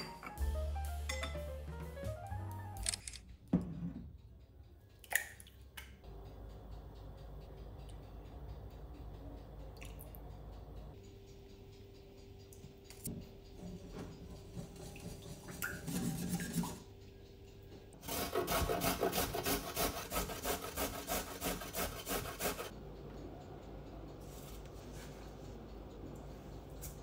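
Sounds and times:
carrot grated on metal grater: 18.0 - 22.7.

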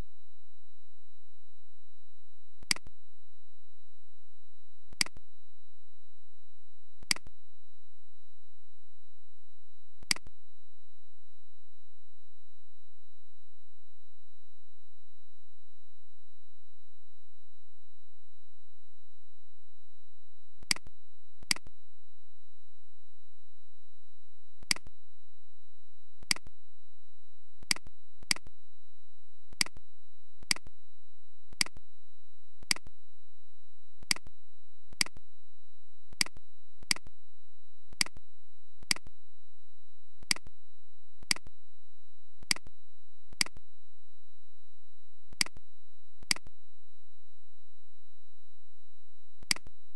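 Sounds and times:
computer mouse clicking: 29.6 - 29.8, 31.6 - 31.8, 35.0 - 35.2.

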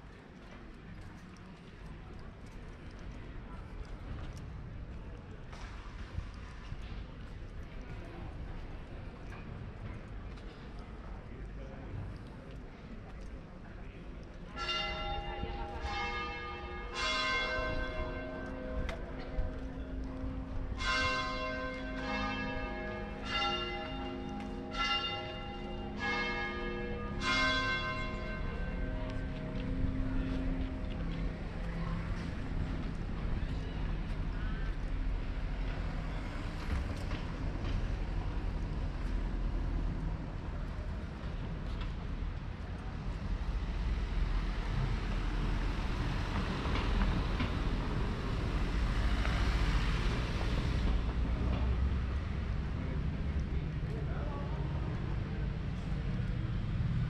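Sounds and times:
low street rumble: 0.0 - 57.0.

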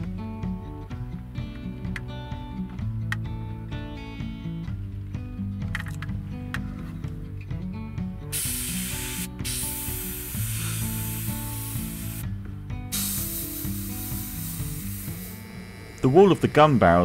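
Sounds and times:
background music: 0.0 - 17.0
airbrush spraying hiss: 8.3 - 12.2, 12.9 - 15.6.

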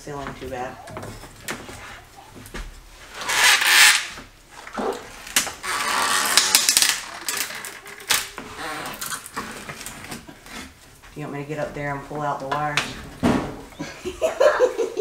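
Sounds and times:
wood stud scraping: 0.1 - 13.7
wood clicks: 3.2 - 10.3.

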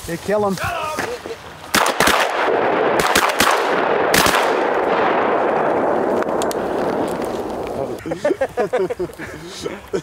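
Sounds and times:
shotgun shots echoing: 1.7 - 7.7.

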